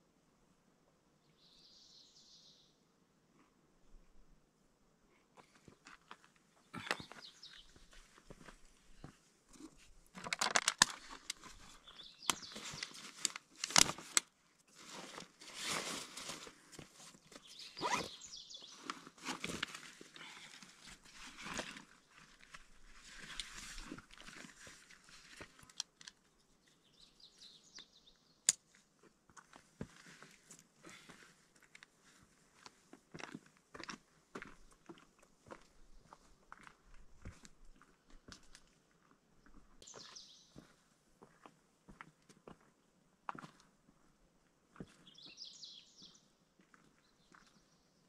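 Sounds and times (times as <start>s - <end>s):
backpack rustling and crinkling: 9.6s - 26.1s.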